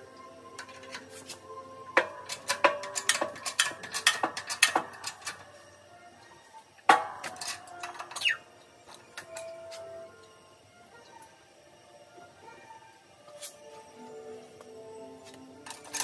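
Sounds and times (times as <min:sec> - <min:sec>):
press metallic clicks and clinks: 0:02.0 - 0:05.6, 0:07.0 - 0:09.6, 0:15.6 - 0:16.0.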